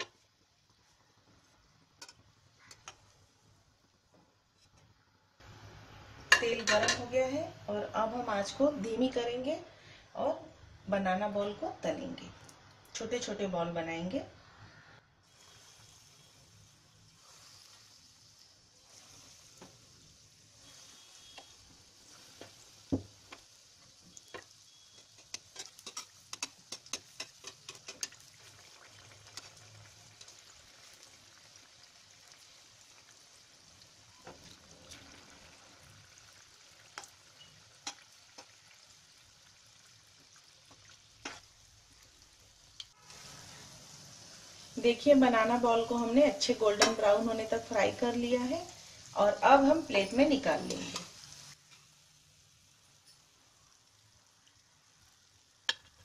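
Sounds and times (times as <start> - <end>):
dough sizzling in hot oil: 0.0 - 13.5, 15.1 - 56.0
metal spoon turning food: 22.0 - 30.5, 36.9 - 38.6.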